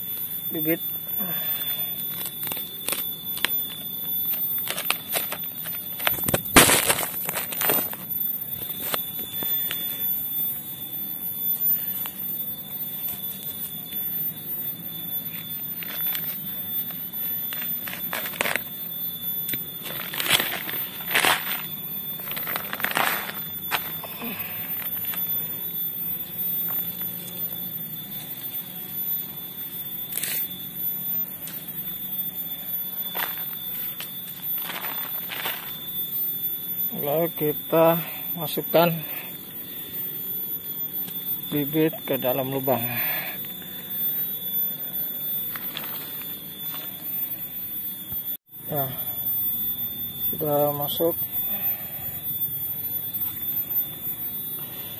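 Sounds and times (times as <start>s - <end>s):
steady high-pitched tone: 0.0s - 54.9s
plastic bag crinkling: 17.5s - 18.7s, 19.8s - 25.2s.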